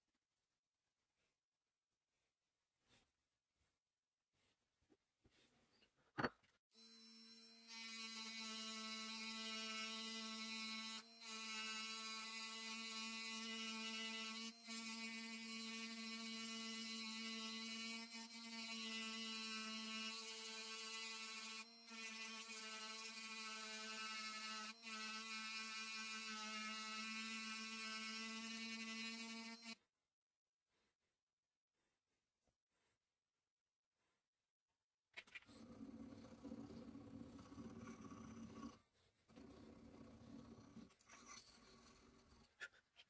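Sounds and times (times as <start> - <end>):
rotary tool grinding steel: 6.8 - 29.8, 35.3 - 43.0.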